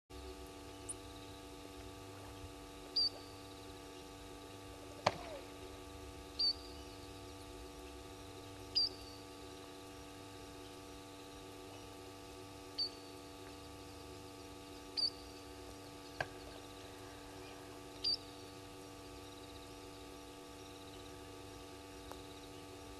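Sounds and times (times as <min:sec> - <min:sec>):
steady low hum: 0:00.1 - 0:22.9
high chirping call: 0:06.4 - 0:07.0, 0:08.7 - 0:09.2, 0:15.0 - 0:15.3.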